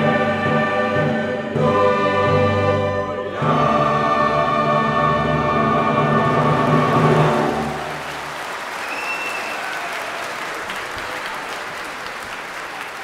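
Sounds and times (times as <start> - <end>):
choir and orchestra: 0.0 - 8.2
audience applauding: 6.6 - 13.0.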